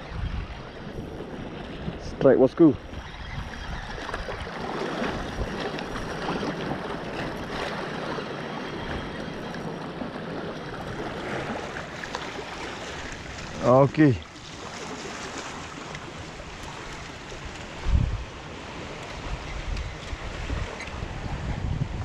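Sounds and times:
small waves washing: 0.0 - 21.5
wind: 0.0 - 22.0
fishing reel ticking: 2.8 - 9.9.

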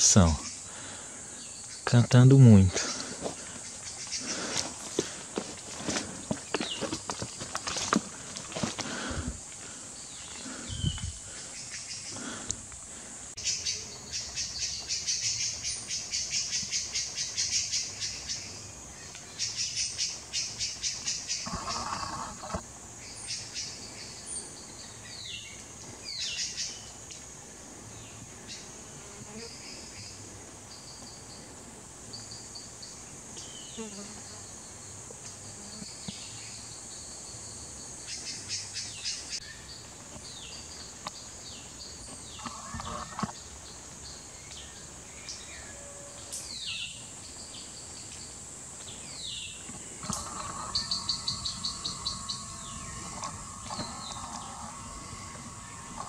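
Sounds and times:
high-pitched insect buzz: 13.3 - 24.3, 32.1 - 38.4, 42.2 - 56.0
bird rapid trills: 50.0 - 56.0.

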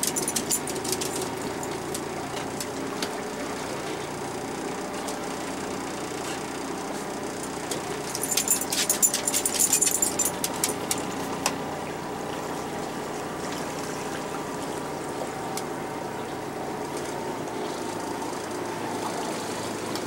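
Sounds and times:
outboard motor running: 0.0 - 20.0.

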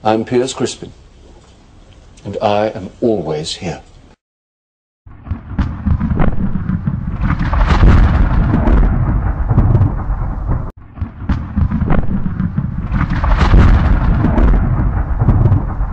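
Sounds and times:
deep rumbling explosion with crackles: 5.1 - 15.9.

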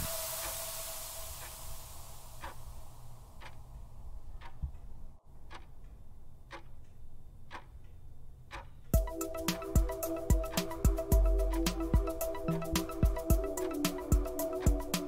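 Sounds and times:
low hum: 0.0 - 8.3, 9.0 - 15.0
countdown timer ticking: 8.5 - 15.0
music with strong beat: 9.0 - 15.0.

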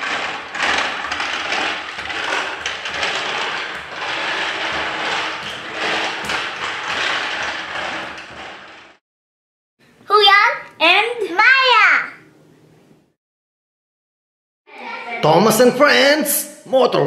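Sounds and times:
plastic toy wheels rolling on tiles: 0.0 - 9.0.

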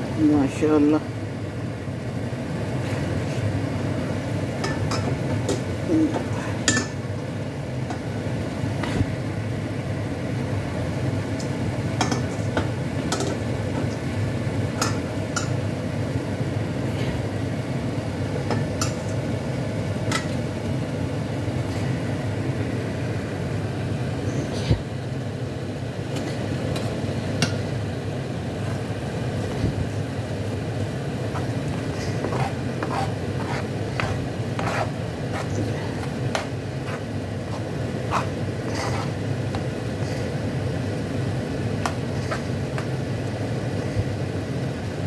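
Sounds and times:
steady low hum: 0.0 - 45.0
curry sizzling with pops and clicks: 11.3 - 15.7, 18.3 - 20.8, 40.8 - 43.4.

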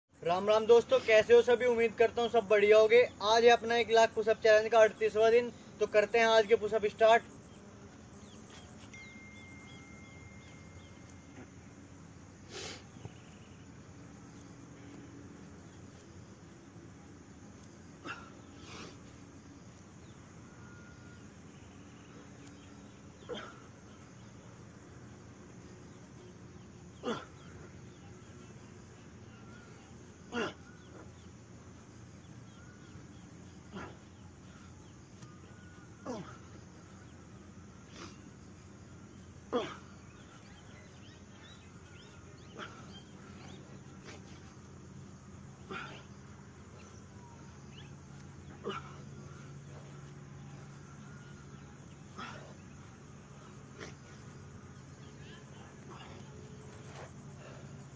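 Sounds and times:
faint outdoor background: 0.0 - 57.9
insects chirping trill: 0.1 - 57.9
short hiss: 12.4 - 13.1.

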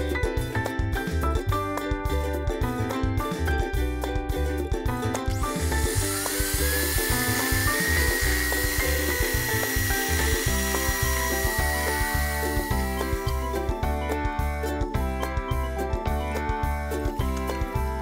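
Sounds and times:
background music with beat: 0.0 - 18.0
electric hand mixer whine: 5.4 - 13.8.

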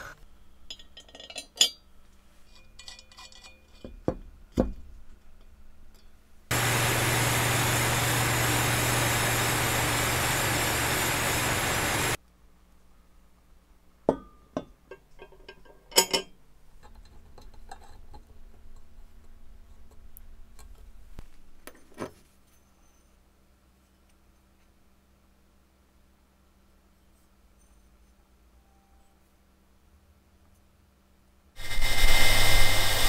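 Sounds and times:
low hum: 5.9 - 12.2, 31.6 - 33.0
spray gun hissing: 6.5 - 12.2, 31.6 - 33.0.

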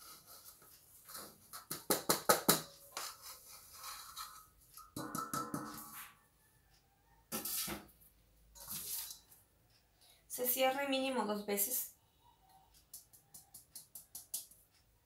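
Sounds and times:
metal bowl tapping sieve rim: 4.8 - 6.1.

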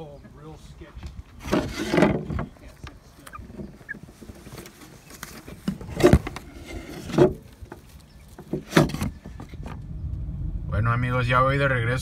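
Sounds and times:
scrapes: 1.3 - 9.8
chicken scuffling in wooden coop: 1.4 - 9.8.

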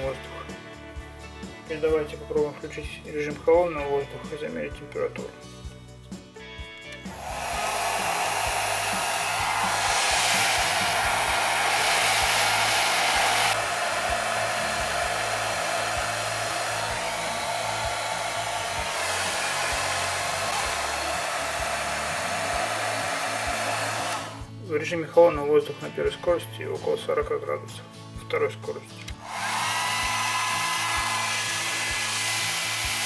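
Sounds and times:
hair dryer blowing: 7.0 - 24.5, 29.2 - 33.0.

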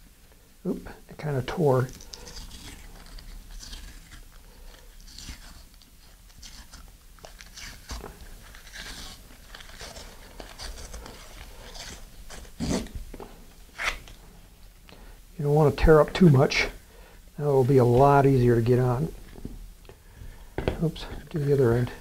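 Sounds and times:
paper tearing and crinkling: 1.6 - 13.0, 13.7 - 14.2.

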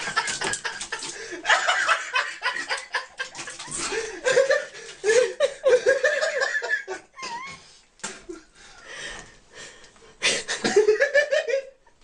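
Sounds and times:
laughter: 0.0 - 7.6, 10.4 - 12.0.

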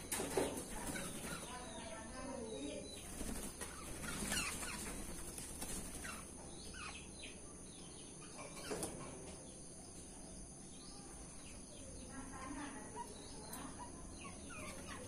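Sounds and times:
wings fluttering: 0.0 - 1.6, 2.9 - 6.3.

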